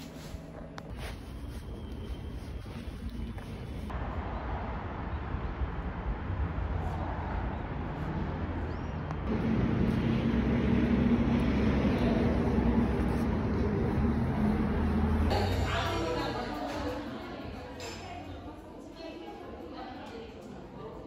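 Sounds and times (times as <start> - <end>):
low rumble of passing cars: 0.0 - 15.3.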